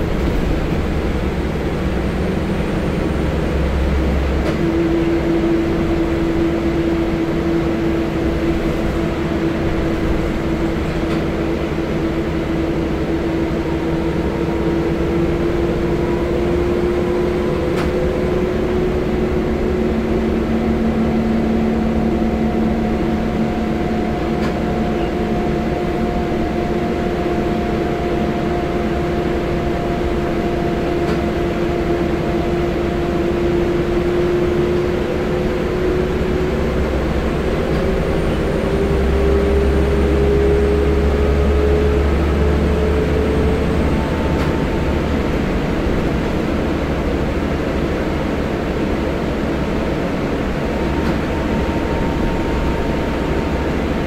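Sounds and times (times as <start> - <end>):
bus engine and road rumble: 0.0 - 54.0
drivetrain whine: 0.0 - 54.0.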